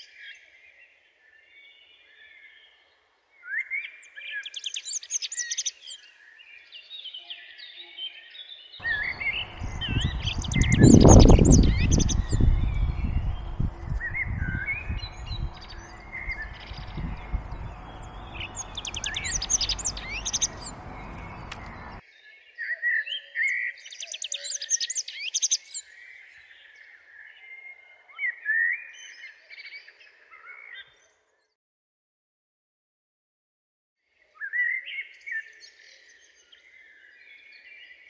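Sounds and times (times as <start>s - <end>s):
birds chirping and singing: 8.4s - 22.3s
wind rumbling on microphone: 8.8s - 22.0s.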